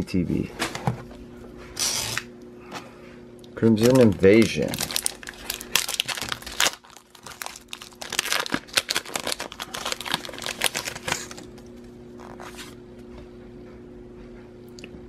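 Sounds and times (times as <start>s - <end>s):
faint steady hum: 0.0s - 15.0s
foil wrapper crinkling and tearing: 3.6s - 12.8s.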